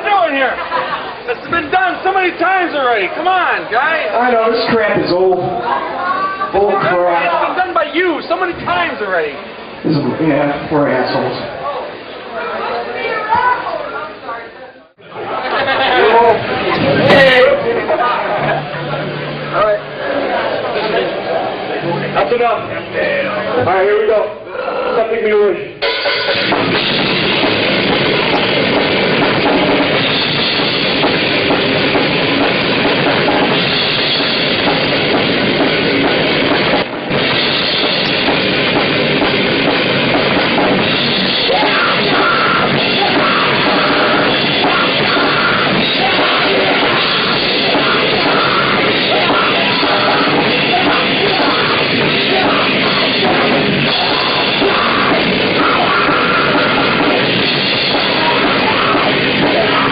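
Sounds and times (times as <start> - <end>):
death metal band playing live: 15.2 - 24.0, 25.8 - 59.9.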